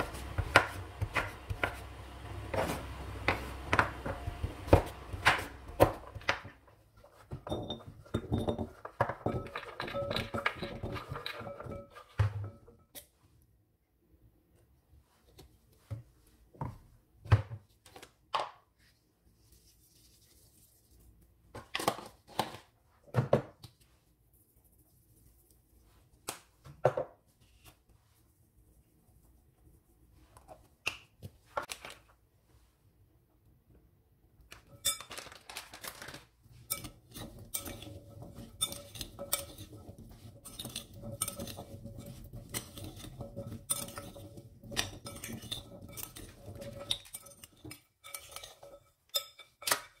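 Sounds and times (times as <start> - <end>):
metal spoon stirring in glass bowl: 7.5 - 12.6, 36.6 - 50.0
dishes clinking on glass bowl: 7.5 - 12.7.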